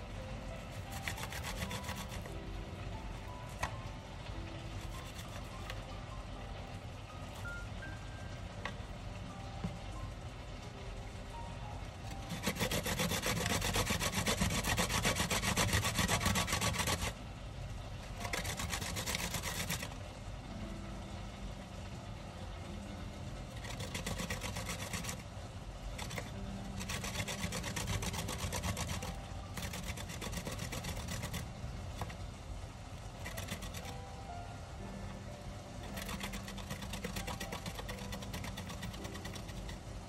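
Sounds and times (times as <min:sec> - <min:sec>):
ginger grated on metal grater: 0:00.0 - 0:06.0, 0:12.1 - 0:17.2, 0:18.0 - 0:20.0, 0:23.4 - 0:32.2, 0:33.0 - 0:34.3, 0:35.8 - 0:40.0.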